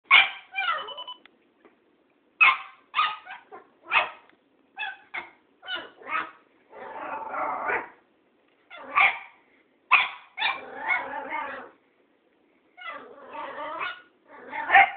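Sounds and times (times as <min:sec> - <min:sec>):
dog barking: 0:00.1 - 0:00.8, 0:02.4 - 0:04.2, 0:08.8 - 0:09.3, 0:09.9 - 0:11.1, 0:13.8 - 0:14.9.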